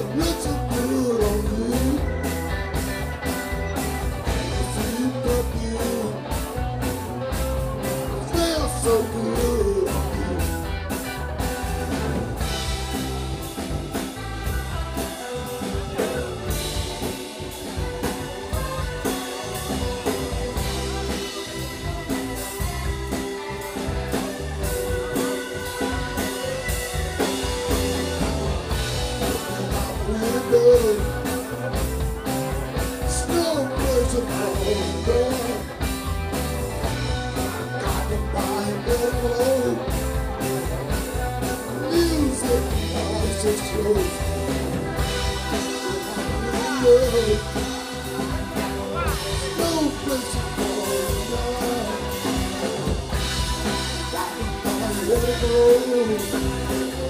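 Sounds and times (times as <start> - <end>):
man singing into a microphone: 0.0 - 2.3, 4.4 - 6.7, 8.1 - 10.6, 29.2 - 31.7, 33.0 - 35.9, 37.6 - 40.0, 41.6 - 44.6, 45.8 - 48.0, 48.9 - 53.0, 53.7 - 57.0
bass guitar: 0.0 - 57.0
drum kit: 0.0 - 57.0
electric guitar: 0.0 - 57.0
keyboard: 0.0 - 57.0.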